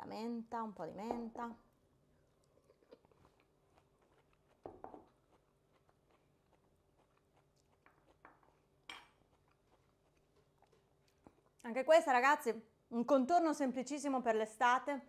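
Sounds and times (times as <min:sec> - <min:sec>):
chewing crunchy salad: 0:02.2 - 0:11.7.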